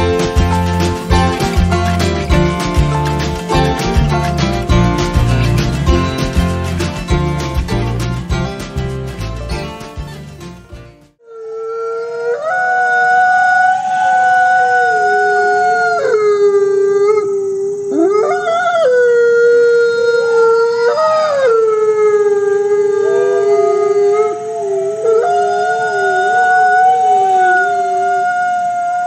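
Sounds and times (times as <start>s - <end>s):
dogs howling: 12.0s - 29.0s.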